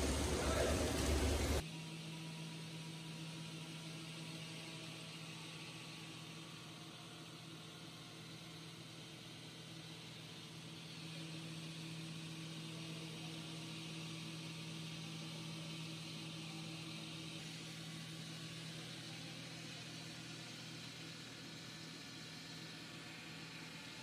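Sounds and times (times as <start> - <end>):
water spray hissing: 0.0 - 1.6
circular saw motor hum: 0.0 - 24.0.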